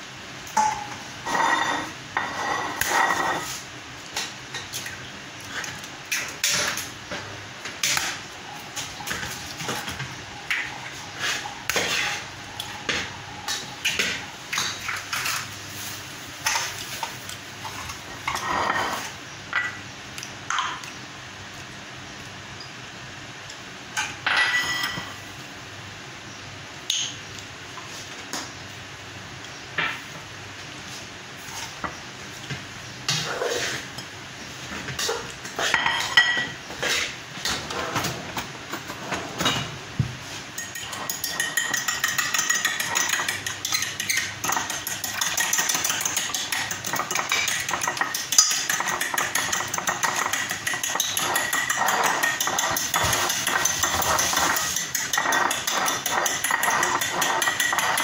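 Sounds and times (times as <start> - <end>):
kitchenware clinking: 0.6 - 3.6, 18.2 - 19.8, 24.0 - 25.2, 35.1 - 36.6, 40.5 - 58.0.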